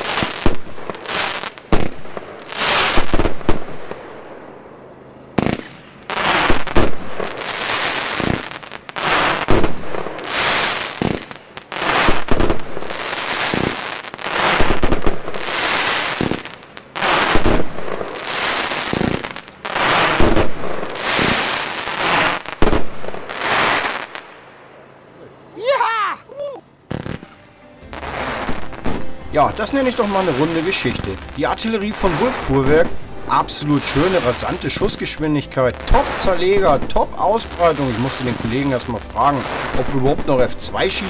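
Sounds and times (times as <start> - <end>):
firework shells bursting: 0.0 - 4.2, 5.4 - 24.4
firework shots launching: 0.0 - 24.7, 26.9 - 41.0.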